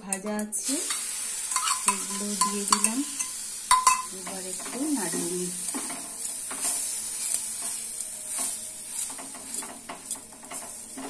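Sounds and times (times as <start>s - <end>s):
frying sizzle: 0.0s - 11.0s
wooden spatula scraping a pan: 4.4s - 11.0s.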